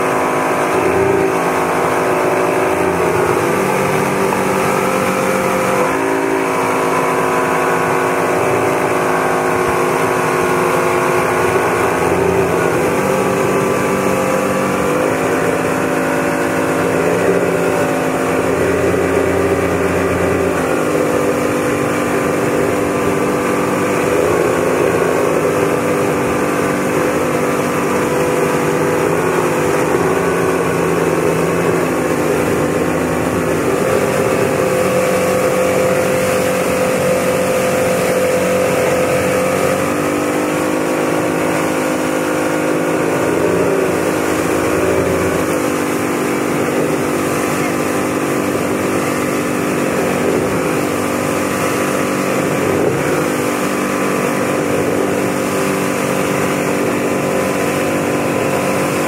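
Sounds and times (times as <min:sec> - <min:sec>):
motorboat engine running: 0:00.0 - 0:59.0
rush of boat wake: 0:00.0 - 0:59.0.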